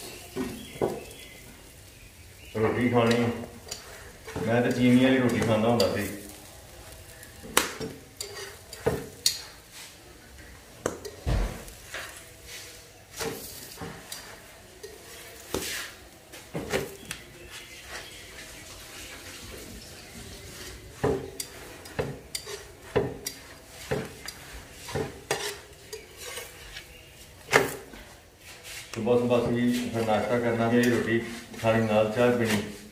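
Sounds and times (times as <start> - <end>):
faint sizzling: 0.0 - 32.9
metal tongs clinking on iron pan: 3.0 - 6.4, 7.1 - 9.7, 10.4 - 11.2, 13.2 - 15.6, 21.0 - 26.9.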